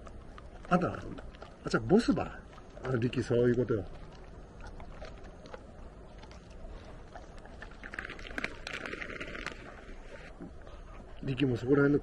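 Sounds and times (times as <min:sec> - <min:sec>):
dogs chewing and licking: 0:00.0 - 0:12.0
low steady rumble: 0:00.0 - 0:12.0.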